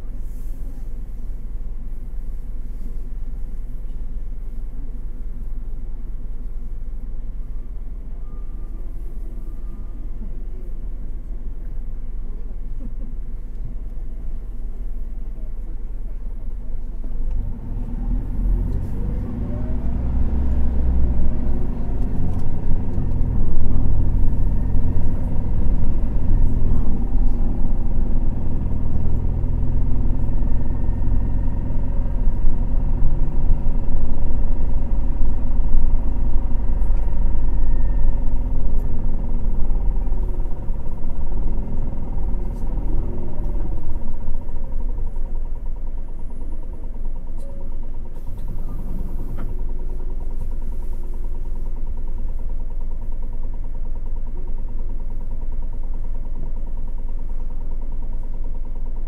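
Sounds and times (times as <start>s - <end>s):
bus engine accelerating: 0.0s - 59.0s
steady whine: 21.0s - 50.3s.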